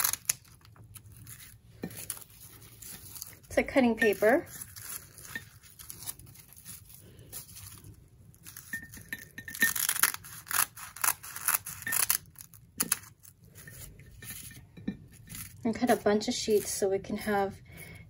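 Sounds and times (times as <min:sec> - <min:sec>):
scissors cutting dried seaweed: 0:00.0 - 0:06.2, 0:09.5 - 0:13.1.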